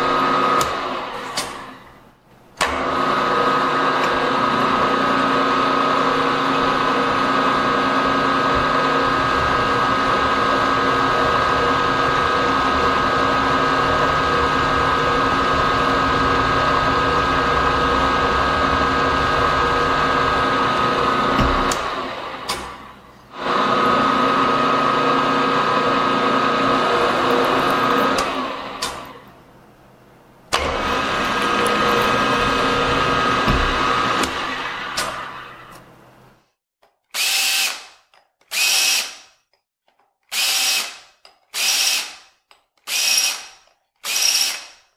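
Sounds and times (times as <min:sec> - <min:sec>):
milling machine whining: 0:02.6 - 0:29.5, 0:30.5 - 0:36.0.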